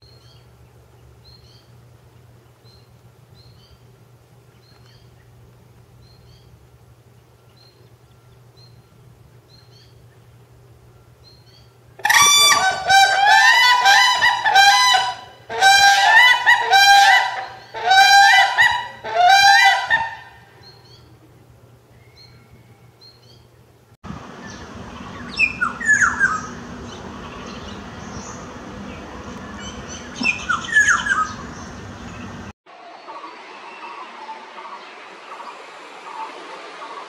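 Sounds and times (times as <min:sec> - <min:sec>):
crane bugling calls: 0:12.0 - 0:20.4, 0:24.7 - 0:32.5.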